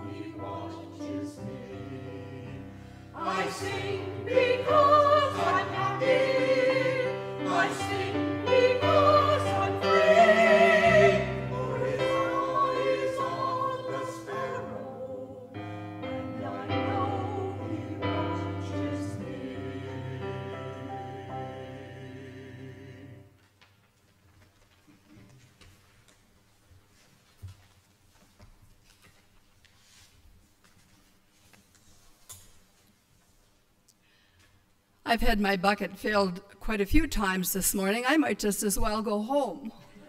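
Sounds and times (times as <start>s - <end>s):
organ accompaniment: 0.0s - 23.2s
church choir singing: 0.0s - 23.4s.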